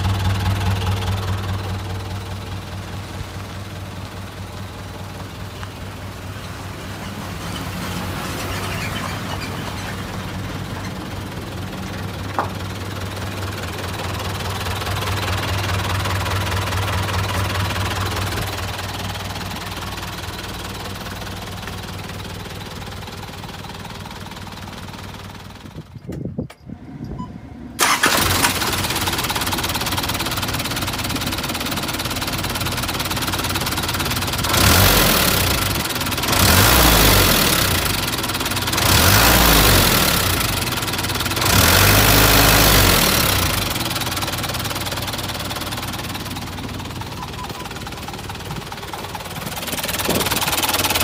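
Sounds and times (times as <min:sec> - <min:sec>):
diesel engine idling: 0:00.0 - 0:51.0
engine revving in short bursts: 0:27.8 - 0:29.2, 0:34.5 - 0:38.1.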